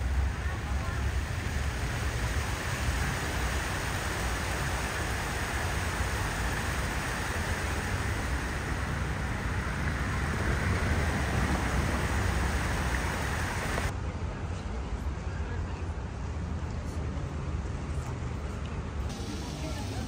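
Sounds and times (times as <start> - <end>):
steady rushing noise: 0.0 - 15.2.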